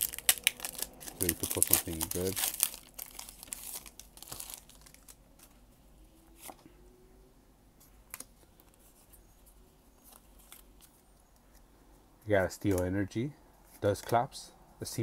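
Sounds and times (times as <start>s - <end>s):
foil wrapper crinkling and tearing: 0.0s - 5.4s.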